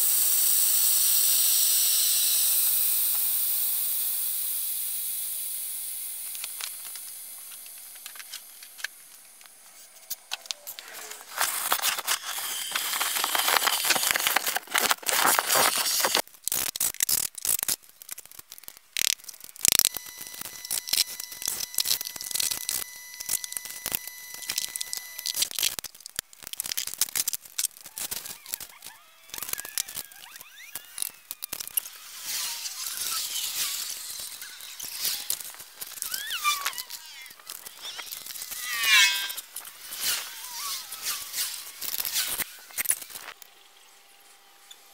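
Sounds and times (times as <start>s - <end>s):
rattles clicks and crinkles: 6.4s - 43.5s
loud rustling and scraping: 9.7s - 16.2s
cordless drill whirring: 10.8s - 16.2s.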